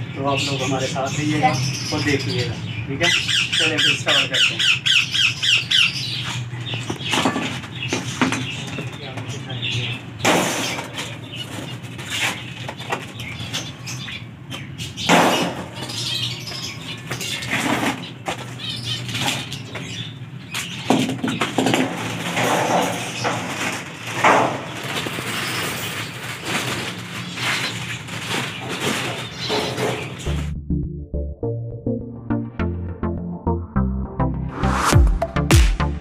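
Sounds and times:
plastic packaging crinkling: 23.4s - 30.1s.

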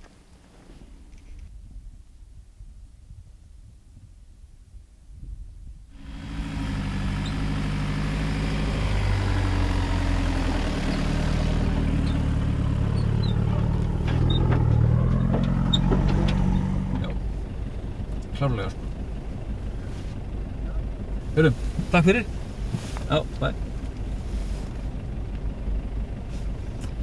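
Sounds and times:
engine approaching: 5.9s - 27.0s.

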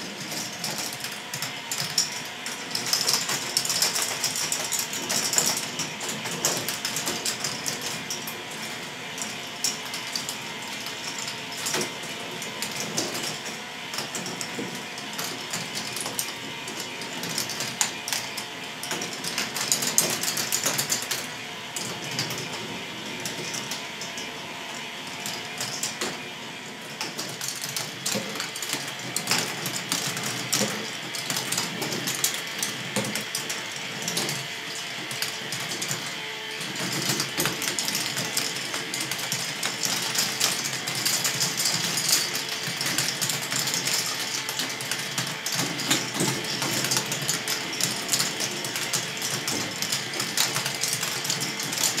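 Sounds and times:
clicking and rattling: 0.0s - 24.3s, 27.0s - 52.0s
motor whir: 0.0s - 52.0s
plastic balls clattering: 27.0s - 52.0s.

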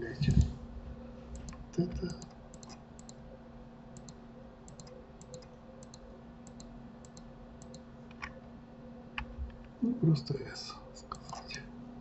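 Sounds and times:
computer mouse button clicking: 4.0s - 7.8s.

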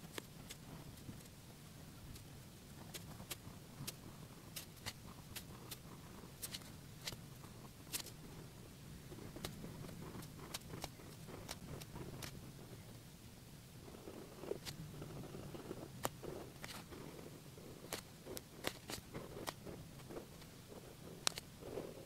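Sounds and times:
low steady hum: 0.0s - 22.0s
felt-tip pen ticking on paper: 9.2s - 12.4s, 17.7s - 22.0s.

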